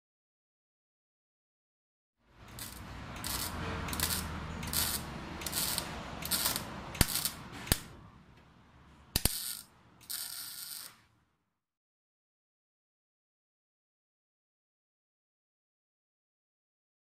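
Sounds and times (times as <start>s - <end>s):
arc welding bursts: 2.5s - 7.9s, 9.2s - 11.0s.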